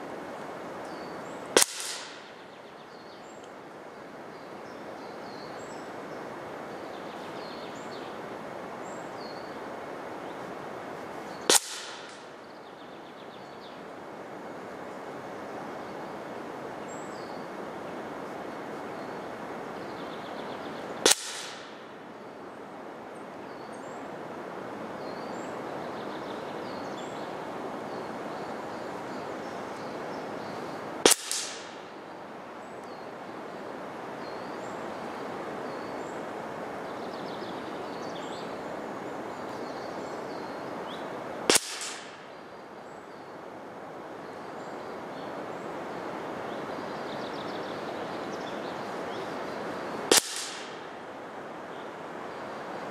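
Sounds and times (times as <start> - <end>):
steady outdoor hiss: 0.0 - 52.9
air rifle cracks: 1.6 - 2.5, 11.5 - 12.3, 21.0 - 21.8, 31.0 - 31.9, 41.5 - 42.3, 50.1 - 50.9.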